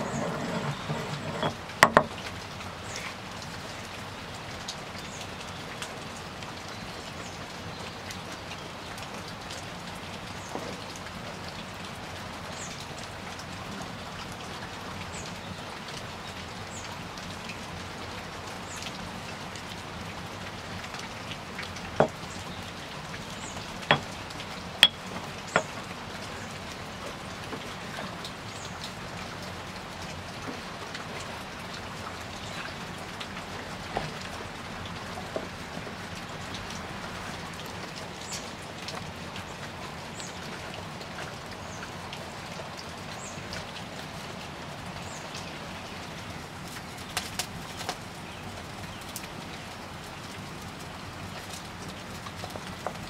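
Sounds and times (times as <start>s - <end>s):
wood fire crackling and popping: 46.7s - 48.0s.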